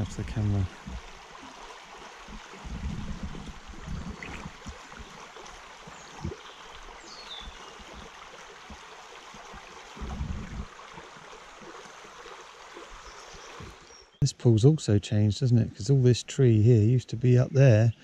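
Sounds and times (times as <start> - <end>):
low rumbles: 0.0 - 1.2, 2.2 - 6.4, 9.9 - 10.8
shallow river water running: 0.0 - 18.0.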